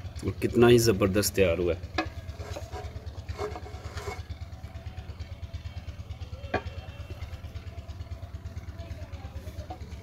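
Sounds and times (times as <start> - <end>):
engine idling: 0.0 - 10.0
wooden spatula scraping pot: 2.3 - 4.3.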